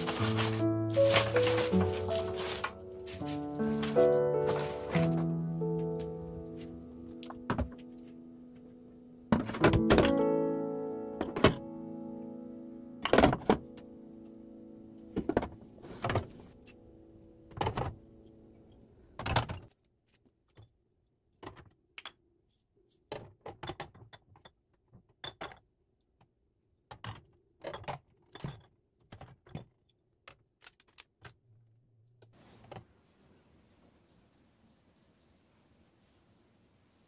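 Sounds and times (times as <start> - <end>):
glass jars and bottles clinking: 0.0 - 5.2
soft background music: 0.0 - 19.2.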